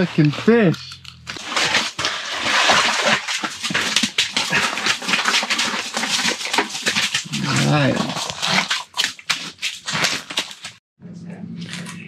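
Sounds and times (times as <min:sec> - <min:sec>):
fish flopping on wet ice: 0:01.3 - 0:10.8.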